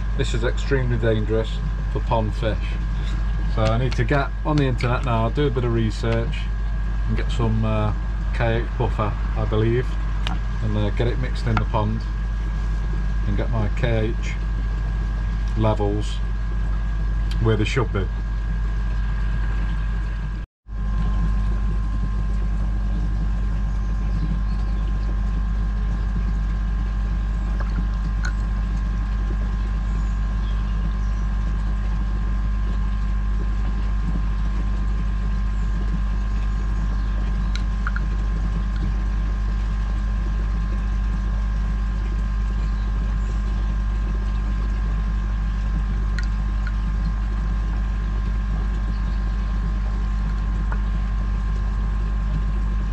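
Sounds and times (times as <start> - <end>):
low machine hum: 0.0 - 52.9.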